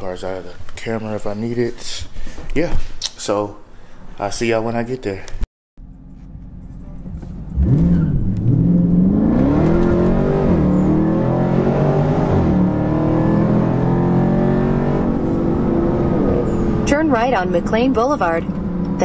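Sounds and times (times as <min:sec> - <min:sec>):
car engine accelerating: 0:05.8 - 0:19.0.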